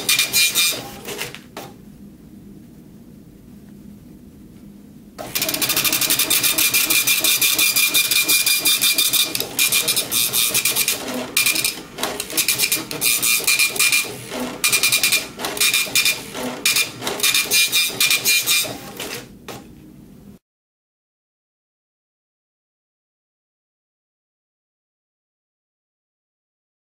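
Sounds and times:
dot-matrix printer printing: 0.0 - 1.7, 5.2 - 19.6.

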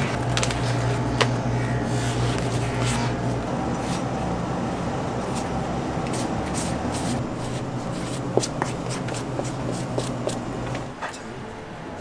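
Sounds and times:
workshop hum: 0.0 - 12.0
brush scrubbing rubber sole: 6.1 - 10.5.

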